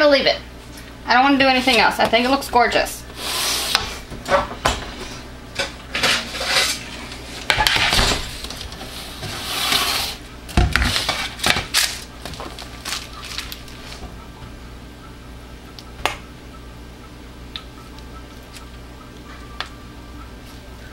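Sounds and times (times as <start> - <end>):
metal baking sheet clanking: 5.9 - 8.3
parchment paper rustling: 10.8 - 14.0.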